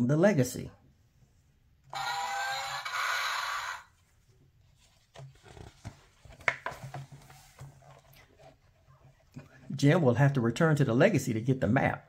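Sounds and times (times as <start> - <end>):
electronic toy speaker sound effect: 1.9 - 3.9
paper page turning: 4.7 - 8.3.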